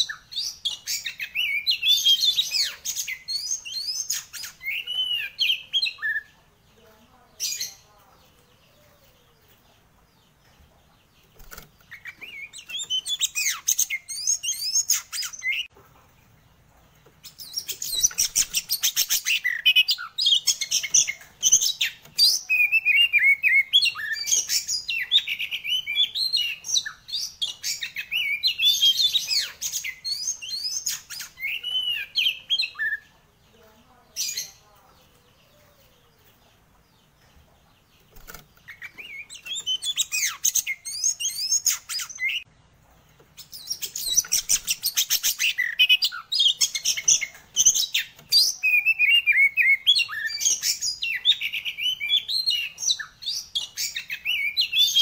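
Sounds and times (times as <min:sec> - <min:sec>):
songbird whistles and trills: 0:17.2 - 0:33.0, 0:38.2 - 0:42.5, 0:43.4 - 0:55.0.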